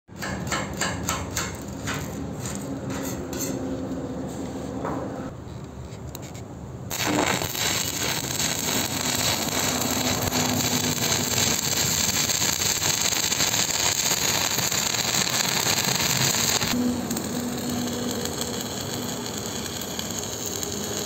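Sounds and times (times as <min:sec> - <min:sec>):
welding arc crackling and sizzling: 0:06.9 - 0:21.0.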